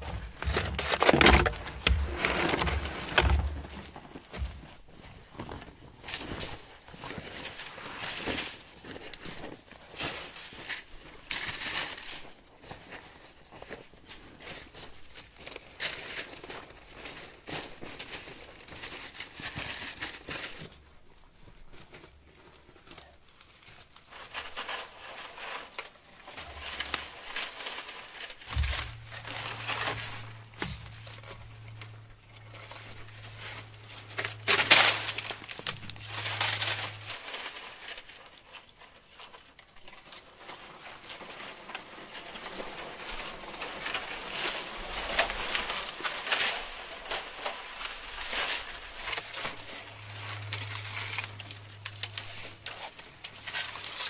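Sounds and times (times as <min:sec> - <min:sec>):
dry palm fronds rustling: 0:00.0 - 0:20.9, 0:21.7 - 0:54.0
steady low hum: 0:28.5 - 0:37.3, 0:48.2 - 0:54.0.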